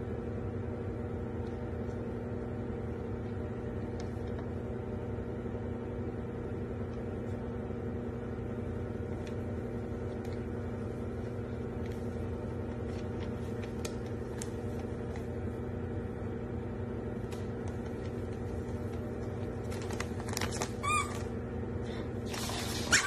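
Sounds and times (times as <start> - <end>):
steady low hum: 0.0 - 23.0
wrapping paper crinkling: 11.8 - 15.3, 17.3 - 21.3.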